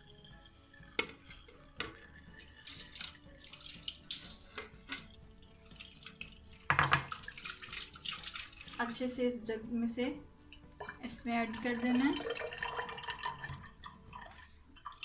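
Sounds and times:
water trickling through strainer: 0.0s - 9.2s, 10.5s - 15.0s.

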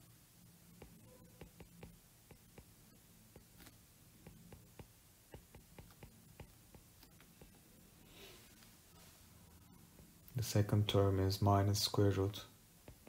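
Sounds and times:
low steady hum: 0.0s - 13.0s
stylus tapping on glass screen: 0.8s - 3.5s, 4.2s - 7.6s.

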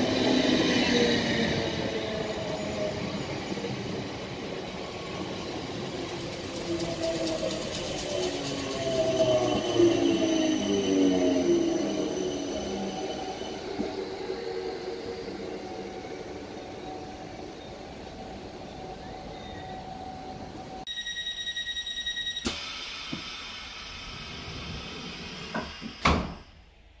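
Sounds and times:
electric train rumbling: 0.0s - 20.9s, 21.7s - 27.0s
faint train whine: 0.0s - 27.0s
train door warning beeps: 18.9s - 22.8s
train doors closing knocks: 25.6s - 26.4s.

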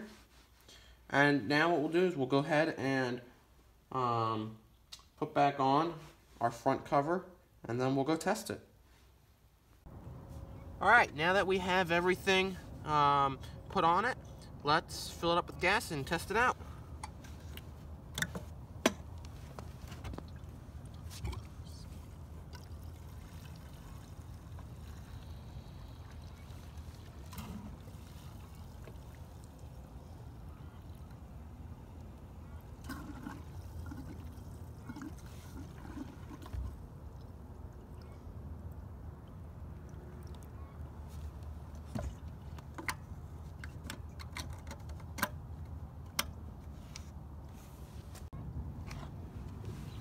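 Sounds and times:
low steady rumble: 9.6s - 46.7s
gasoline trickling into tank: 19.8s - 45.2s.

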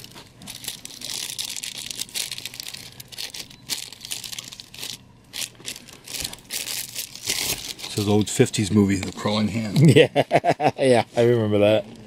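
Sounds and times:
plastic wrap crinkling: 0.0s - 9.9s.

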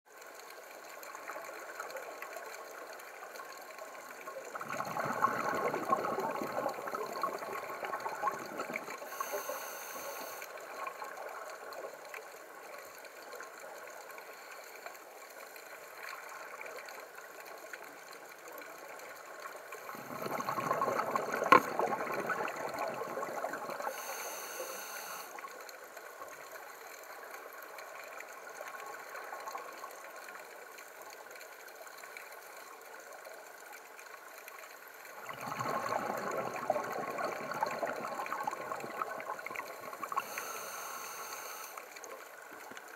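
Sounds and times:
regulator bubbling exhalation: 4.6s - 10.4s, 19.8s - 25.3s, 35.2s - 41.7s
steady low hiss: 9.0s - 10.8s, 23.8s - 25.4s, 39.6s - 42.8s
short high hiss: 9.1s - 10.5s, 23.9s - 25.4s, 40.2s - 41.8s.

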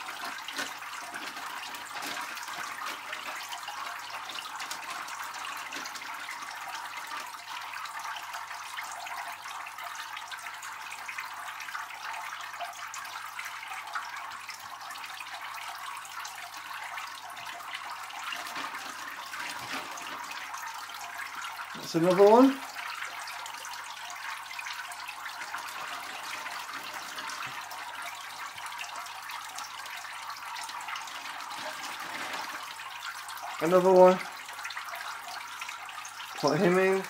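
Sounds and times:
aquarium water running: 0.0s - 37.0s
plastic bag rustling in water: 18.3s - 20.6s, 25.6s - 27.7s, 31.1s - 32.7s.

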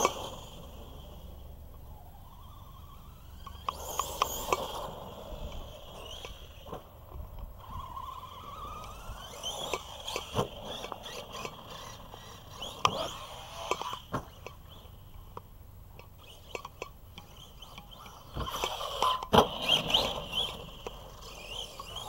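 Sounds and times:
electric motor whining: 0.0s - 15.4s, 16.0s - 22.0s
toy truck knocks and clatters: 3.2s - 6.9s, 7.7s - 15.4s, 16.0s - 22.0s.

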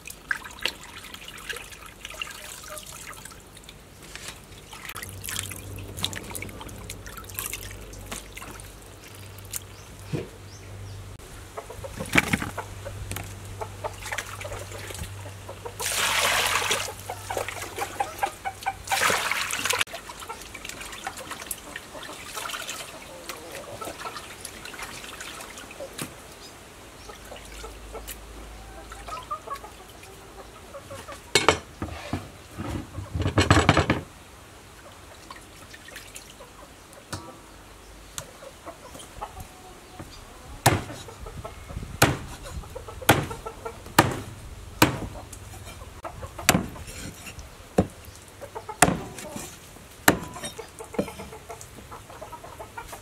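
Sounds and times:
water splashing in a steel bowl: 0.0s - 3.8s, 4.4s - 9.7s, 15.8s - 25.9s, 35.2s - 36.4s
chickens clucking: 7.6s - 34.0s, 34.7s - 53.0s
cleaver chopping on wooden block: 40.7s - 41.0s, 42.0s - 42.4s, 43.1s - 43.4s, 44.0s - 45.1s, 46.5s - 46.8s, 48.8s - 49.2s, 50.1s - 50.4s.

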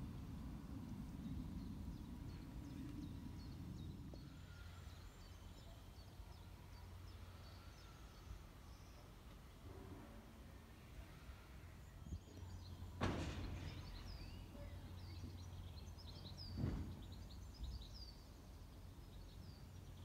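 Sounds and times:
small birds chirping: 13.6s - 20.0s.

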